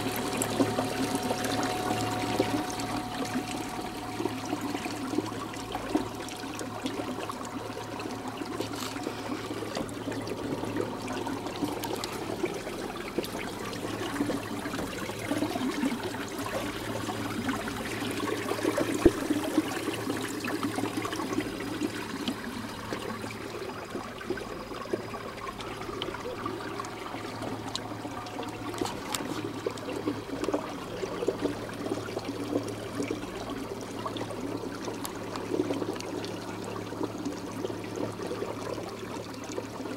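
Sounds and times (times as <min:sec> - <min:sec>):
water splashing along kayak hull: 0:00.0 - 0:39.9.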